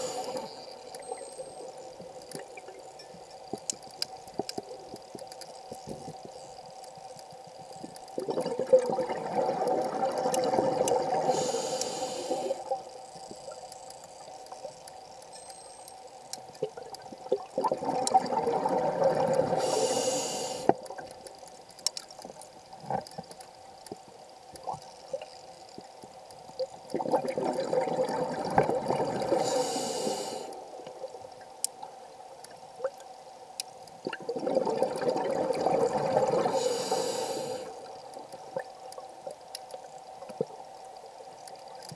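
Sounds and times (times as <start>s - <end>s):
regulator hiss: 0.0s - 2.2s, 11.1s - 13.6s, 19.5s - 20.8s, 29.3s - 30.8s, 36.3s - 38.2s
faint clicks: 0.0s - 34.2s, 35.5s - 41.9s.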